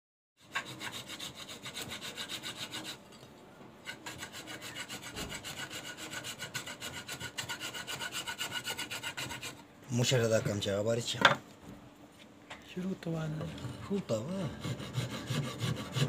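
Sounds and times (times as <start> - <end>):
filing wood by hand: 0.4 - 3.0, 3.8 - 9.6, 13.4 - 16.0.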